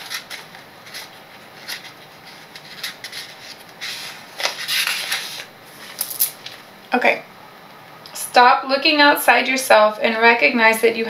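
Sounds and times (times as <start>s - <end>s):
cards rustling and tapping: 0.0s - 6.6s.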